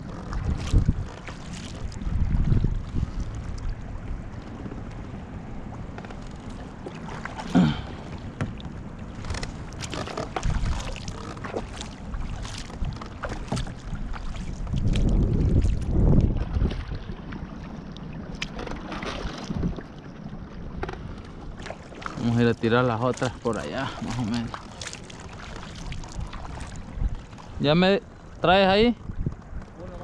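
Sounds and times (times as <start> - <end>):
water sounds: 0.0 - 30.0
wind rumbling on microphone: 0.0 - 30.0
knocks against boat: 6.8 - 11.9, 12.5 - 13.9.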